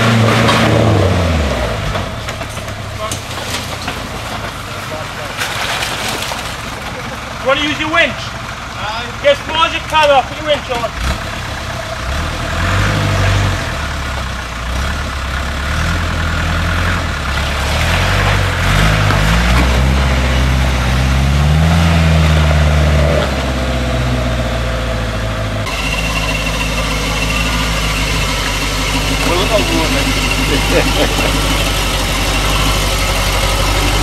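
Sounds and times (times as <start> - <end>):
truck engine revving: 0.0 - 34.0
engine running steadily: 19.0 - 34.0.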